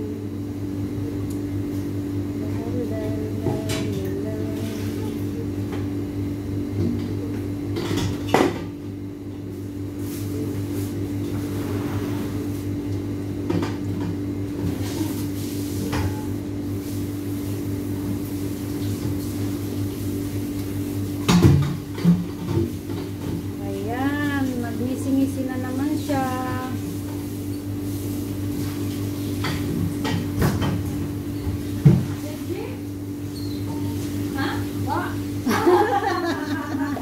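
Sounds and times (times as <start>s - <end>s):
steady machine hum: 0.0s - 37.0s
dough deep-frying in oil: 9.0s - 35.8s.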